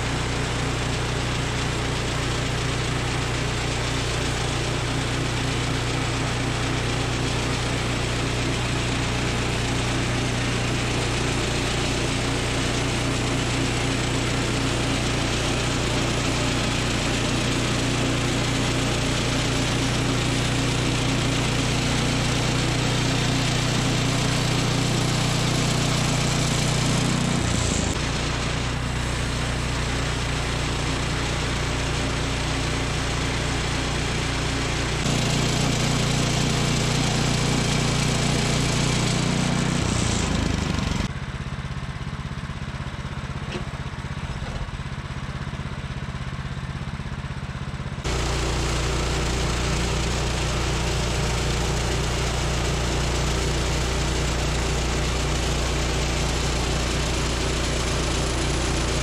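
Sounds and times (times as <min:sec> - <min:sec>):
sawmill gas engine running: 0:00.0 - 0:59.0.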